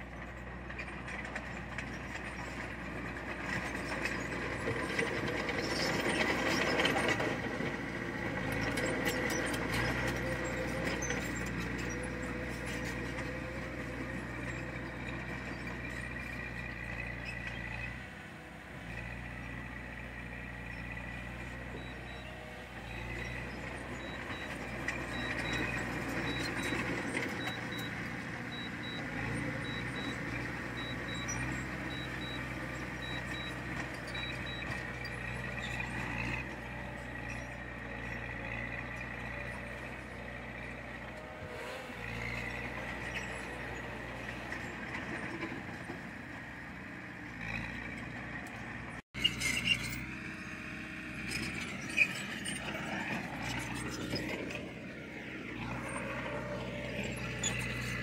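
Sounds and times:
diesel engine running: 0.0s - 58.0s
reversing alarm beeping: 24.0s - 34.8s.

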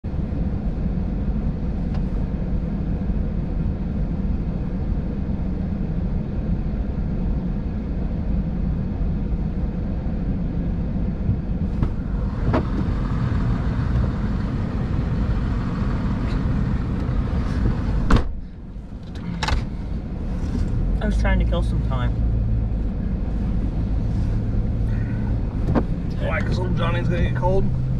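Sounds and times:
car engine idling: 9.7s - 27.9s.

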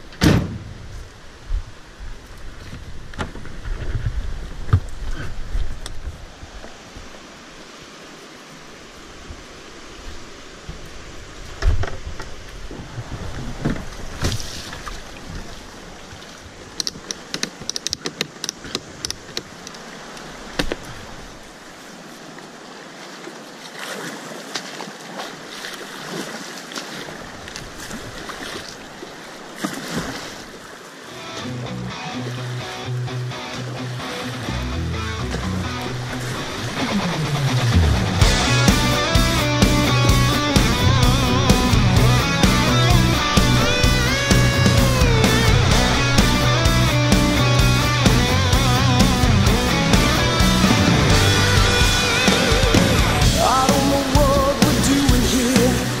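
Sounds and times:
rushing water: 0.0s - 56.0s
paddle splashes: 2.4s - 47.7s
knocks and clicks: 16.8s - 19.6s
low rumbling: 34.5s - 56.0s.

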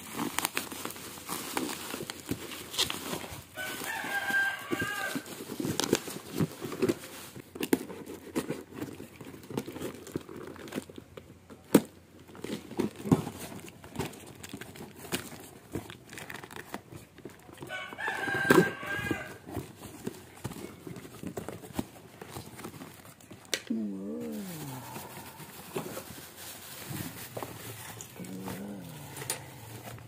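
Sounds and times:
cardboard box being opened: 0.0s - 11.0s, 11.8s - 23.4s, 24.2s - 30.0s
bubble wrap crinkling: 0.0s - 30.0s
rooster crowing: 3.6s - 5.3s, 17.6s - 19.4s.

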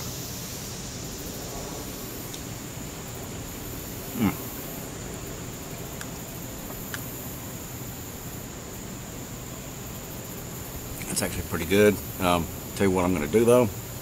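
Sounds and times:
high-pitched insect drone: 0.0s - 14.0s
short falling vocal sound: 4.1s - 4.6s.

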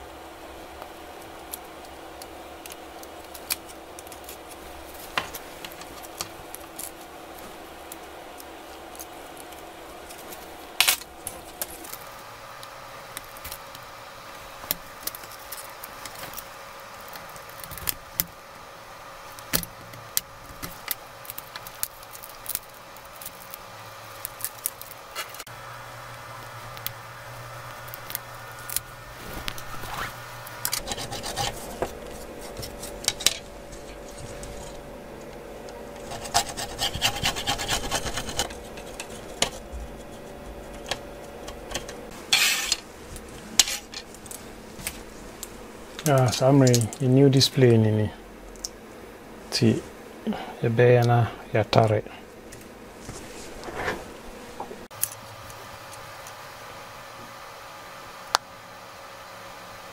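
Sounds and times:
scraper rasping over glass: 29.2s - 34.8s, 36.0s - 40.7s.

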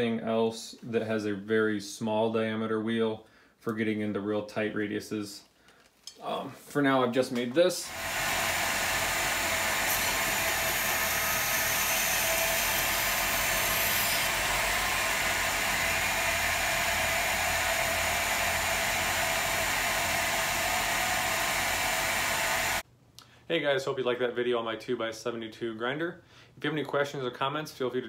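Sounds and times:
belt grinder hissing: 7.8s - 22.8s.

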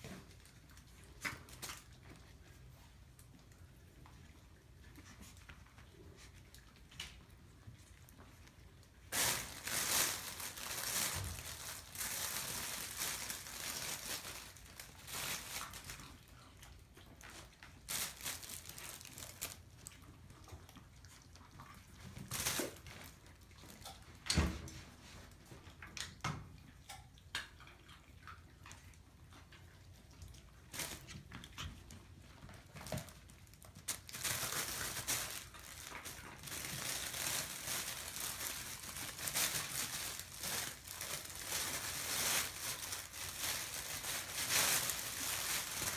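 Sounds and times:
fabric rustling and crinkling: 9.1s - 16.2s, 17.8s - 19.7s, 32.8s - 45.9s.

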